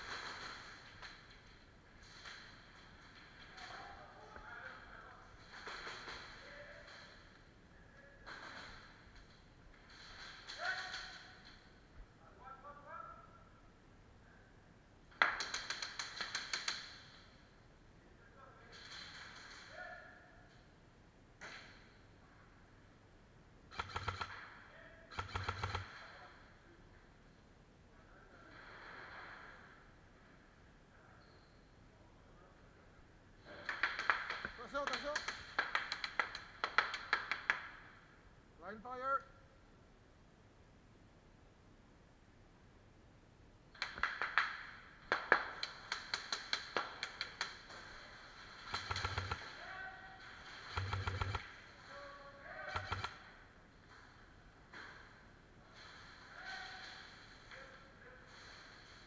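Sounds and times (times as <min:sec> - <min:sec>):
airsoft gun firing bursts: 0:23.7 - 0:24.5, 0:25.1 - 0:26.0, 0:48.6 - 0:49.6, 0:50.6 - 0:51.6, 0:52.7 - 0:53.2.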